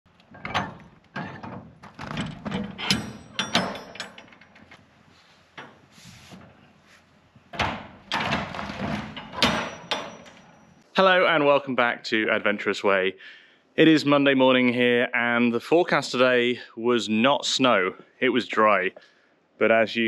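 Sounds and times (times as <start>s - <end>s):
metal container doors clanking: 0.1s - 4.9s, 7.5s - 10.8s.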